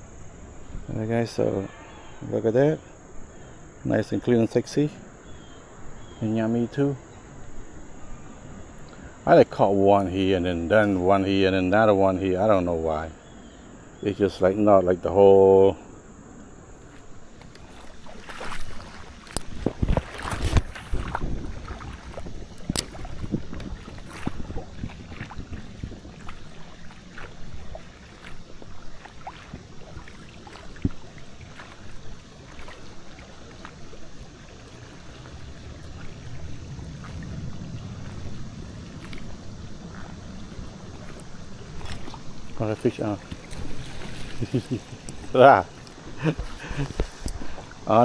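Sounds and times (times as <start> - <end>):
river water running: 0.0 - 48.0
wind on microphone: 17.9 - 33.0, 34.8 - 45.4.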